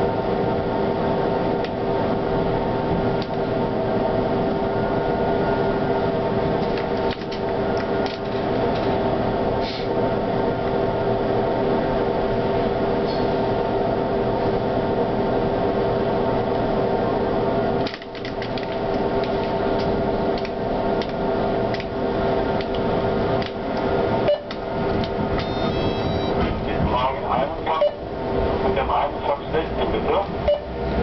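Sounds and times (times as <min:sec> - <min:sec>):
tram equipment hum: 0:00.0 - 0:31.0
held tones: 0:25.4 - 0:26.4.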